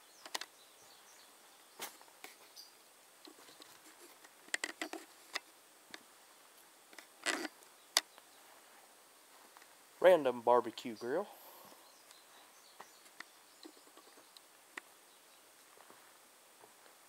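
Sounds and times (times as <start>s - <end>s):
footsteps crunching on dry hay: 8.4s - 9.8s, 15.7s - 17.0s.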